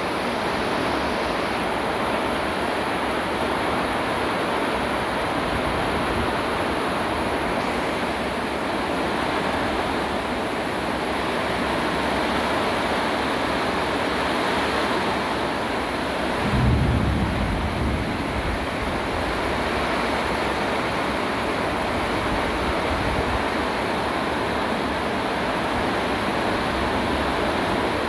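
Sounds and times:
heavy rain: 0.0s - 28.0s
low rumble: 16.4s - 19.6s.

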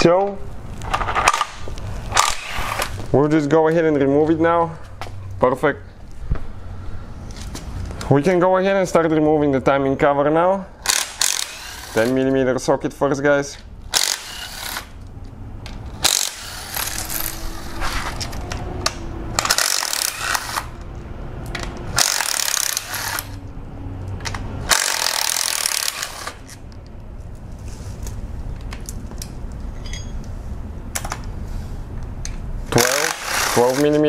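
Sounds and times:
power driver whirring: 10.9s - 12.2s, 13.9s - 15.0s, 16.0s - 20.9s, 21.5s - 23.4s, 24.2s - 26.6s, 32.7s - 34.0s
metal bolts clinking: 29.7s - 30.3s.

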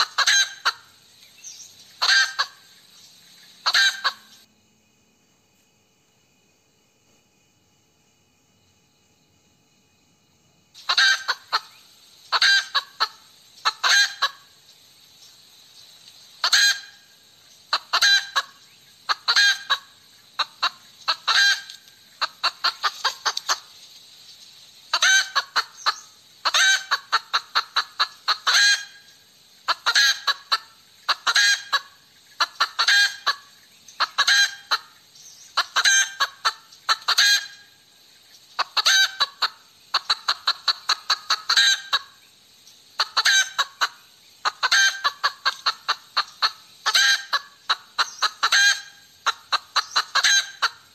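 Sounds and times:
hen cackling: 0.0s - 1.0s, 2.0s - 2.7s, 3.6s - 4.5s, 10.8s - 14.6s, 16.4s - 23.7s, 24.9s - 37.8s, 38.6s - 42.2s, 42.9s - 50.9s.

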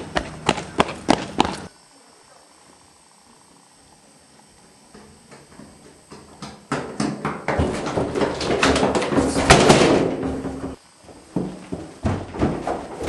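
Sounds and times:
running footsteps: 0.0s - 1.7s, 4.6s - 13.0s
banging and rattling on glass door: 5.0s - 13.0s.

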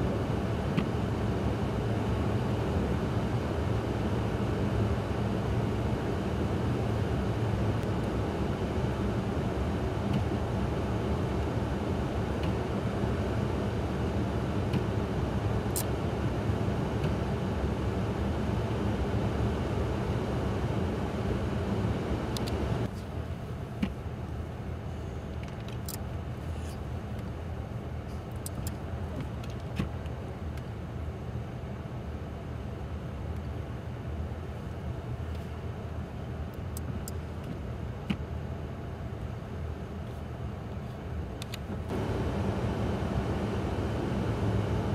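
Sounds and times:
vehicle engine rumbling: 34.1s - 44.9s.

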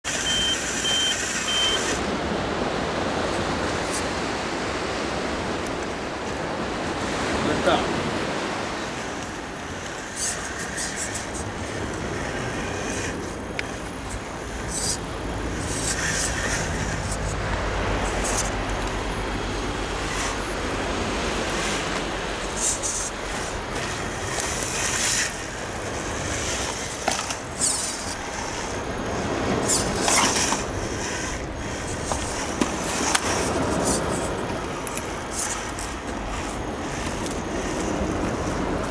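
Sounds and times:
toy car motor running: 0.1s - 2.0s, 9.9s - 18.9s, 21.6s - 38.6s
steady hiss: 8.8s - 38.9s
tyres scraping on stone: 9.0s - 19.0s, 21.5s - 38.6s.

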